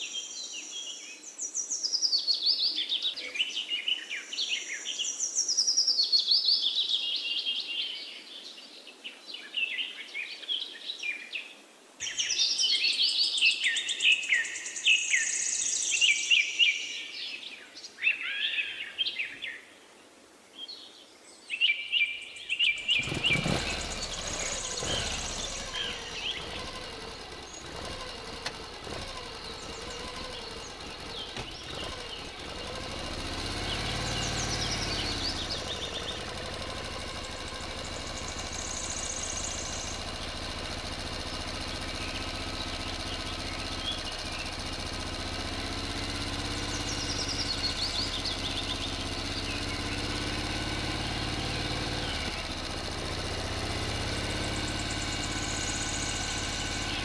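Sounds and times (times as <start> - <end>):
birds chirping: 20.6 - 57.0
small electric motor whirring: 23.0 - 41.7.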